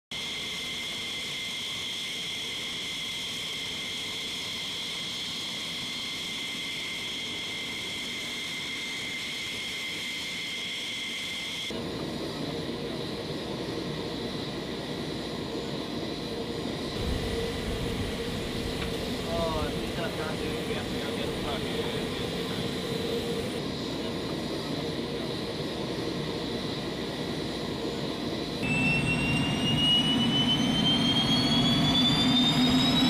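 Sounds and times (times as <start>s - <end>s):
jet turbine whine: 0.1s - 33.0s
low rough engine rumble: 11.8s - 30.8s.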